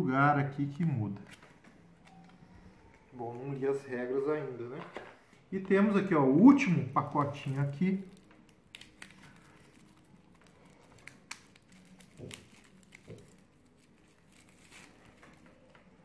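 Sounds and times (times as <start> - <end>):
plastic wrap crinkling and tearing: 6.6 - 16.0.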